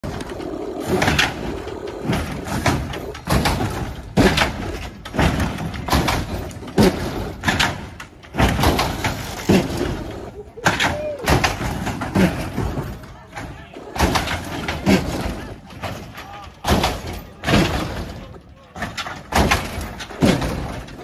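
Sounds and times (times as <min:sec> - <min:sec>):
car banging onto pavement: 0:00.0 - 0:12.9, 0:13.9 - 0:21.0.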